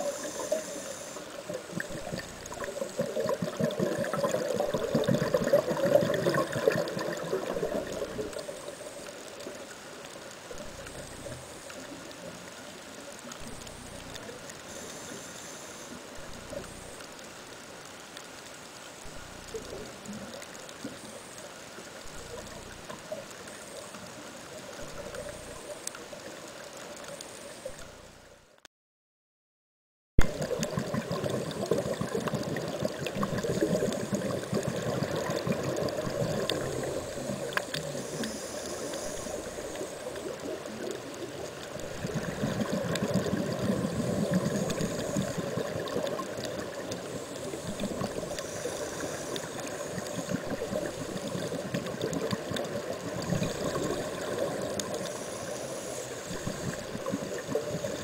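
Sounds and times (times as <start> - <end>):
underwater watery hiss: 0.0 - 28.0, 30.3 - 58.0.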